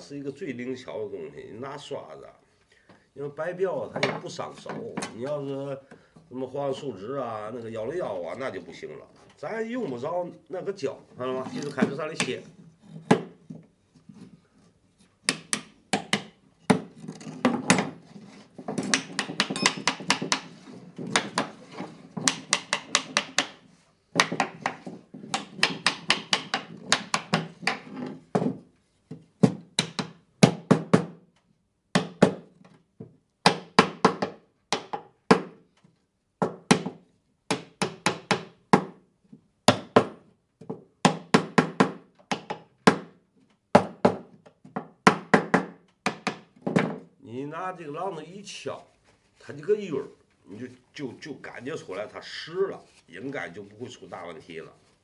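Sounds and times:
small hammer tapping wood: 0:15.2 - 0:16.9, 0:18.8 - 0:21.5, 0:22.2 - 0:23.6, 0:24.2 - 0:28.6, 0:29.4 - 0:31.1, 0:32.0 - 0:35.6, 0:39.7 - 0:43.1.

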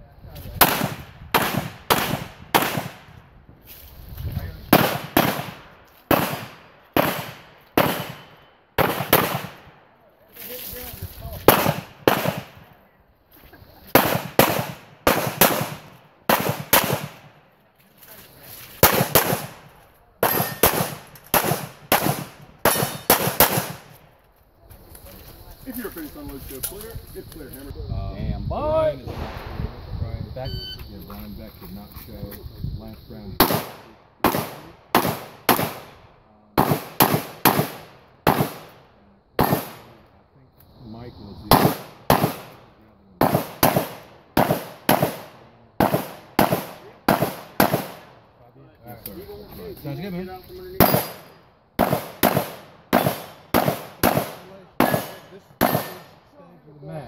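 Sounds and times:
pistol shots with echo: 0:00.6 - 0:03.1, 0:04.7 - 0:09.8, 0:11.4 - 0:12.7, 0:13.9 - 0:17.4, 0:18.8 - 0:24.0, 0:33.4 - 0:38.8, 0:39.4 - 0:40.0, 0:41.5 - 0:48.2, 0:50.8 - 0:56.2.

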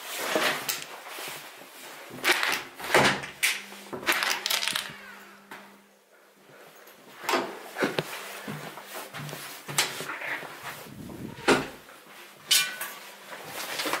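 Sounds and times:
faint steady hum: 0:00.8 - 0:09.4.

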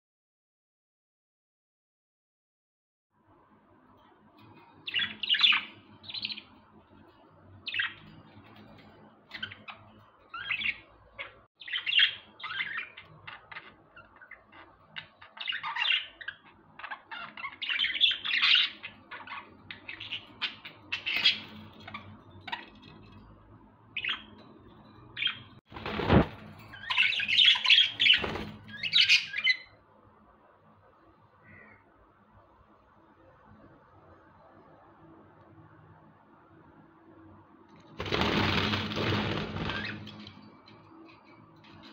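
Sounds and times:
budgerigars chirping: 0:04.8 - 0:06.5, 0:09.3 - 0:22.9, 0:24.0 - 0:24.4, 0:25.1 - 0:29.7.

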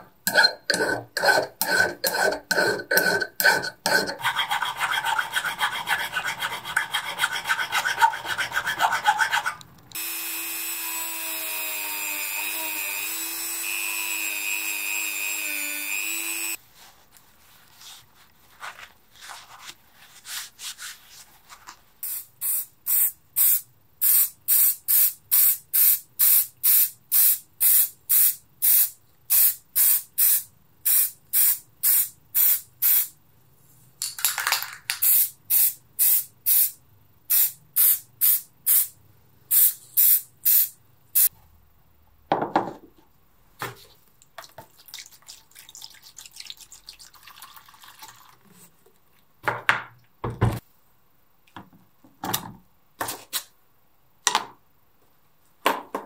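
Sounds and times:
rotary tool whining: 0:09.9 - 0:16.6
spray paint hissing bursts: 0:22.0 - 0:33.1, 0:35.0 - 0:38.9, 0:39.5 - 0:41.3.

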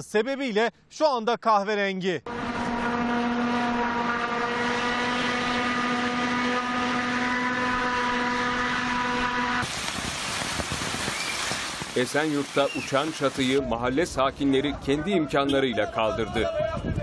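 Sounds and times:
hiss: 0:09.6 - 0:13.3
rain: 0:09.6 - 0:13.6
windstorm rushing: 0:09.6 - 0:13.8, 0:16.4 - 0:17.0.

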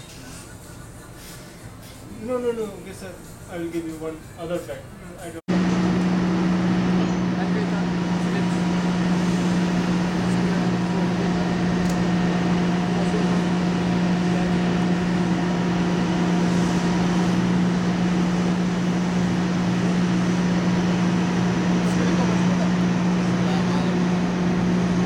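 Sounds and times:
heavy machinery humming: 0:05.5 - 0:25.0.

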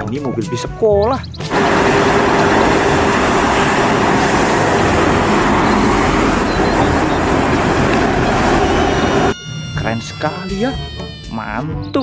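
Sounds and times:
background traffic: 0:01.3 - 0:09.4
minibus engine: 0:01.4 - 0:09.4.

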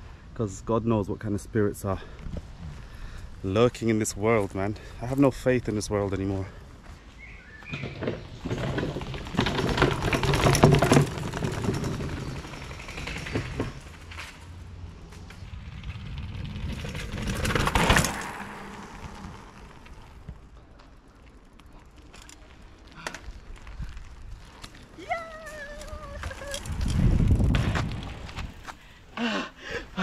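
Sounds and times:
mountain bike rattling on trail: 0:07.6 - 0:28.7.

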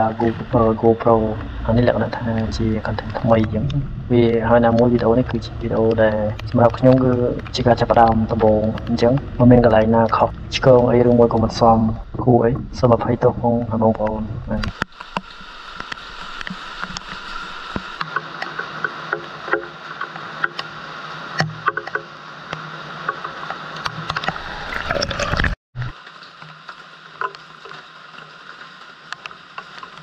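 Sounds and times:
heavy rain falling: 0:00.0 - 0:21.4
water splashing and dripping: 0:00.0 - 0:30.0.

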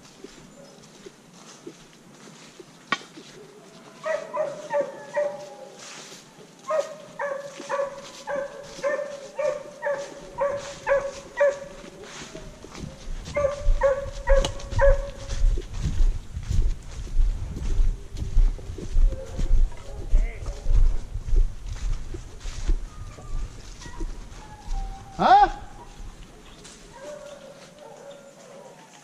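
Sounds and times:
footsteps on leaf litter: 0:00.0 - 0:29.0
hound baying: 0:03.4 - 0:05.8, 0:06.6 - 0:15.4, 0:22.8 - 0:29.0.

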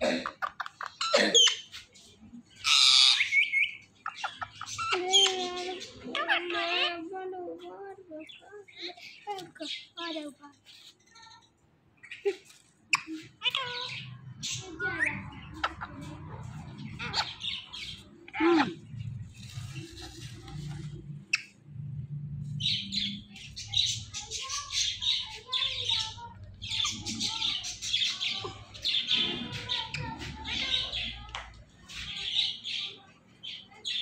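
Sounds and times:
parakeets squawking: 0:00.3 - 0:01.8, 0:02.5 - 0:07.2, 0:12.9 - 0:21.7, 0:22.5 - 0:31.3.

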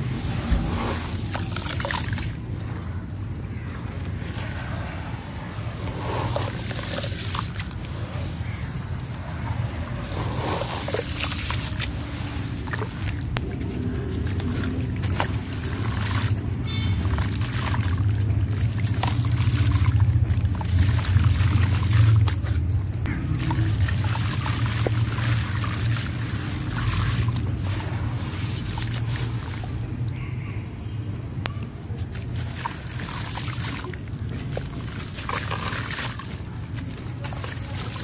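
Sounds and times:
water splashing and trickling: 0:00.0 - 0:30.2, 0:30.8 - 0:38.0
steady low rumble: 0:00.0 - 0:38.0
hands squeezing wet cement: 0:05.4 - 0:29.9, 0:32.0 - 0:38.0.

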